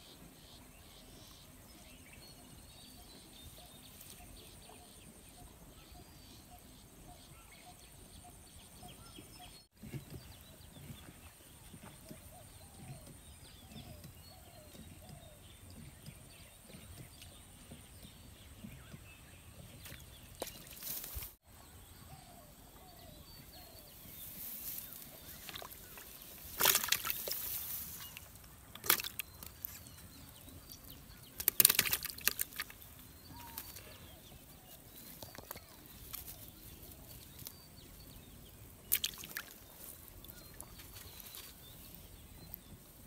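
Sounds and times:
fish flapping in grass: 24.4s - 29.6s, 31.4s - 32.8s
water splashing: 25.2s - 29.7s, 31.4s - 33.8s, 38.8s - 41.3s.

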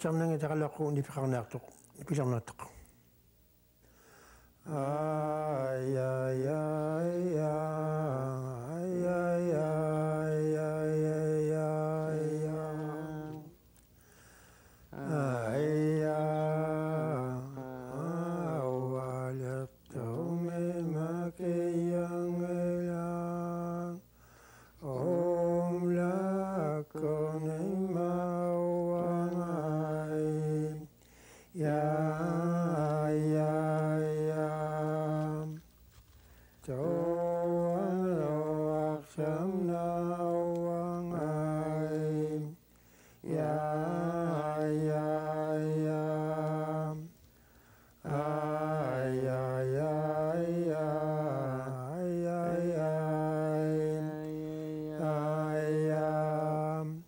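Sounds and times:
short breaths: 3.8s - 4.6s, 13.9s - 14.9s, 24.1s - 24.8s, 31.0s - 31.6s, 36.2s - 36.6s, 42.6s - 43.2s, 47.3s - 48.0s
person singing unaccompanied: 4.6s - 13.7s, 14.9s - 24.1s, 24.8s - 35.8s, 36.6s - 47.4s, 48.0s - 57.0s.

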